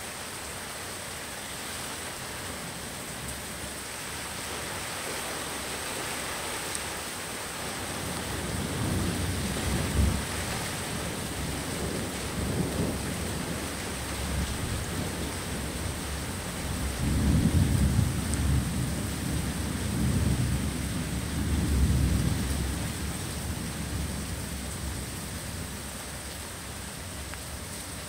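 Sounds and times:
steady rain hiss: 0.0 - 28.0
low rumble of thunder: 7.8 - 26.9.

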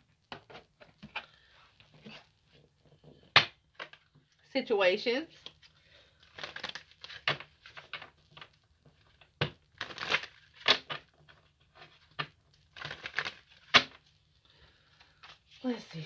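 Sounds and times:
cards being shuffled: 6.3 - 14.0.

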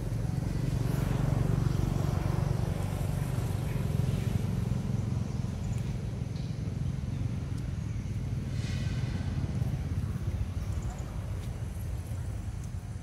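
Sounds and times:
engine droning: 0.0 - 13.0.

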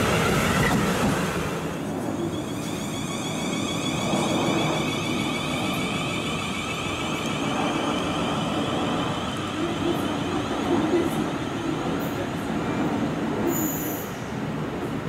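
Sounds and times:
train wheels rumbling on rail: 0.0 - 15.0
wheel squeal: 2.1 - 10.1.

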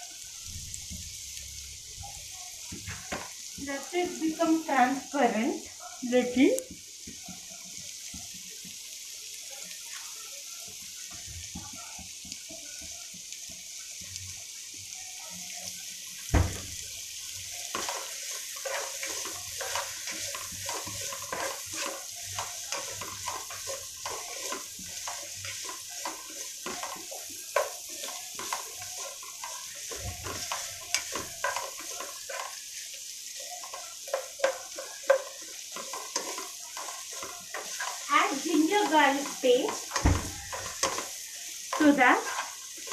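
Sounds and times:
onions sizzling in oil: 0.0 - 42.9
knock on pan: 2.7 - 3.3, 16.3 - 16.8, 39.8 - 40.8
spatula scraping and tapping pan: 2.7 - 3.5, 16.5 - 42.9.

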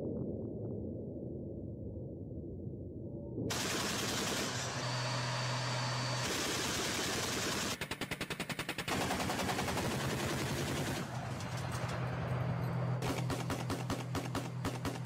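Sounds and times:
automatic cannon fire: 3.5 - 4.8, 6.2 - 12.1, 13.0 - 15.0.

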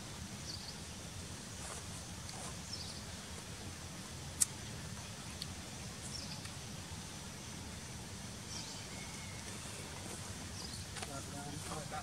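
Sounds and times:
steady low rumble and hiss: 0.0 - 12.0
faint high bird chirps: 8.4 - 10.9.

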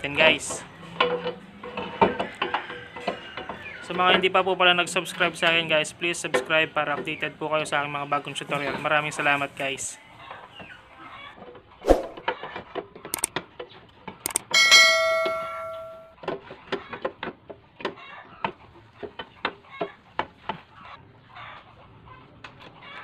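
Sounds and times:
metal struck ringing: 14.5 - 16.2.

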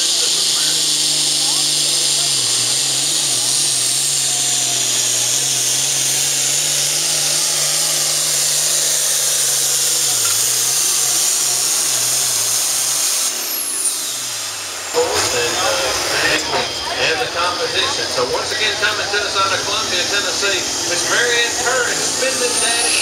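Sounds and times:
high engine whine: 0.0 - 23.0
tractor diesel engine under load: 0.0 - 23.0.

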